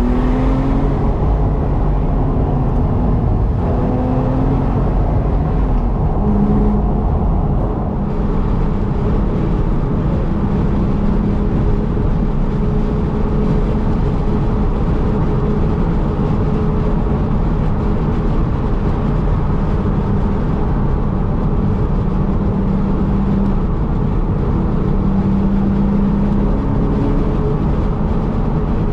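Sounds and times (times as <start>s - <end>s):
faint engine hum: 0.0s - 28.9s
tyre and wind rumble: 0.0s - 28.9s.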